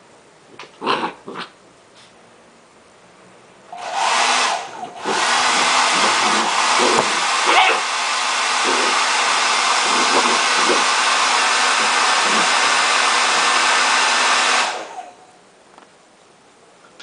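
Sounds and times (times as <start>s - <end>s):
hair dryer blowing: 3.7s - 15.2s.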